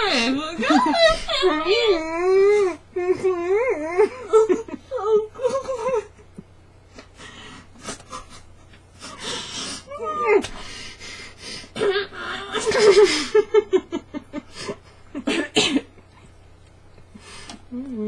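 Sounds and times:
stifled laughter: 3.0 - 9.2, 11.8 - 15.4.

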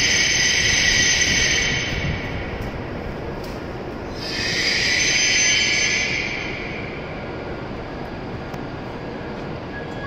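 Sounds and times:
train air brakes hissing: 4.1 - 7.3.

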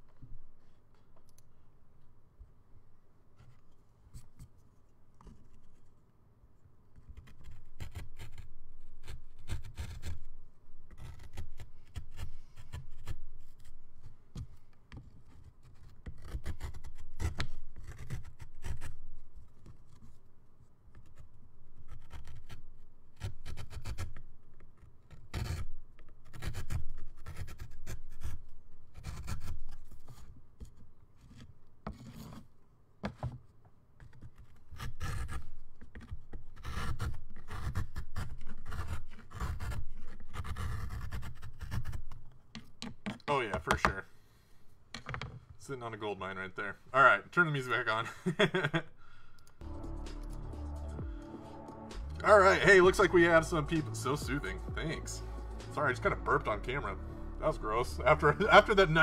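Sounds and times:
carving tool scraping wood: 6.9 - 20.3, 20.9 - 33.4, 34.0 - 43.3.

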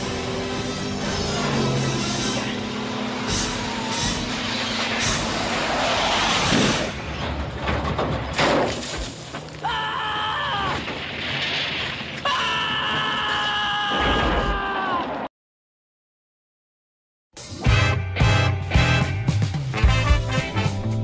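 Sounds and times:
rushing noise: 0.0 - 7.9
sharp crackling bangs: 3.2 - 9.6, 10.7 - 13.3
young man screaming: 9.6 - 10.8, 12.2 - 15.2.

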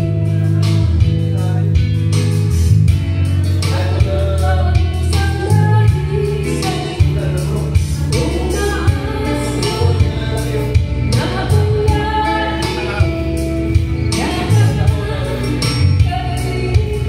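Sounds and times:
backing music with bass beat: 0.0 - 17.0
woman singing: 3.6 - 17.0.

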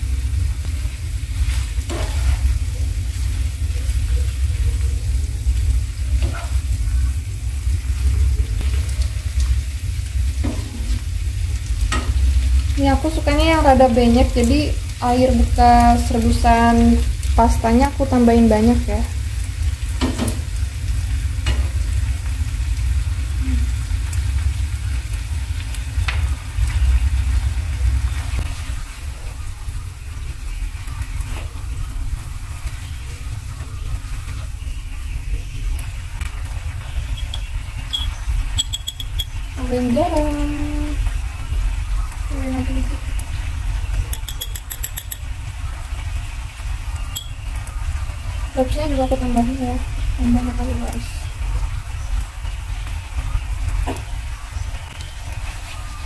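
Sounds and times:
steady low rumble: 0.0 - 44.2
spaghetti sizzling in a frying pan: 0.0 - 56.0
tongs scraping a pan: 1.9 - 2.6, 37.1 - 39.5, 44.0 - 45.3.

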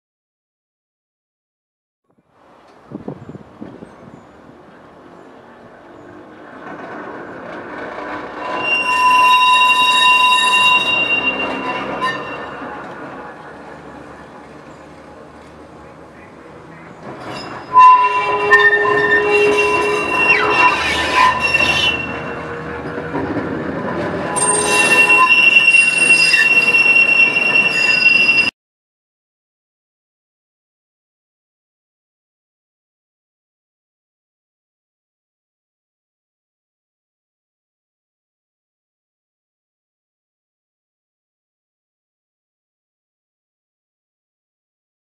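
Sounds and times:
tram rumbling on track: 2.2 - 28.5
tram wheels squealing: 2.6 - 28.6.

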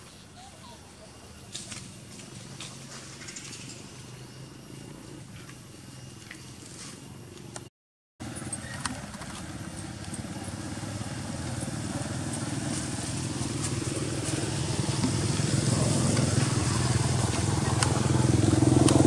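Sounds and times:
small motorbike engine running: 8.2 - 19.0.

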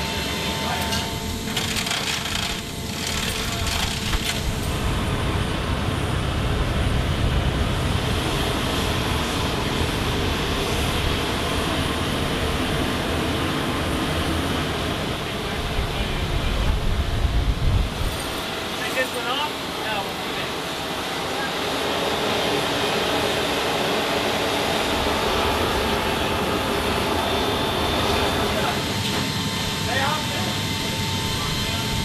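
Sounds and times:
machinery rumble and hiss: 0.0 - 32.0
metal chains clinking: 0.9 - 4.4.

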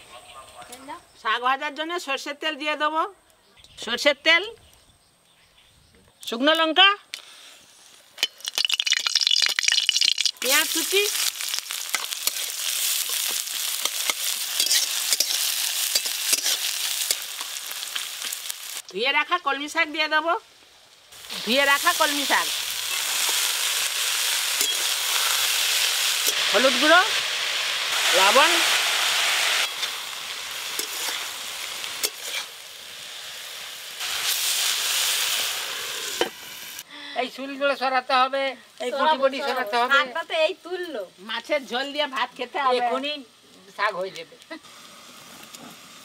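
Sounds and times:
onions sizzling in oil: 7.3 - 46.0
spatula scraping metal pan: 13.1 - 17.2.

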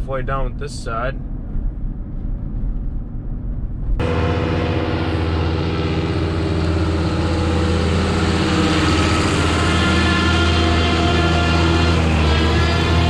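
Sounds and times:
tractor engine droning: 0.0 - 13.0.

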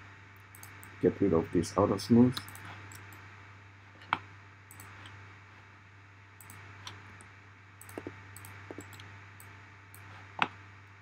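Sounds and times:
steady low hum: 0.0 - 11.0
computer mouse clicks: 0.5 - 1.0, 2.3 - 3.2, 4.0 - 5.2, 6.4 - 10.6.

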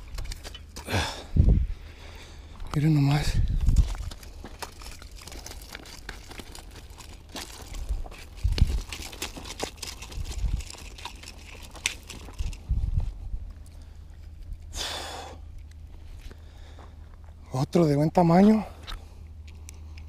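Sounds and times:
gravel crunching: 0.0 - 20.0
low steady rumble: 0.0 - 20.0
fish slapping on gravel: 3.7 - 12.6.

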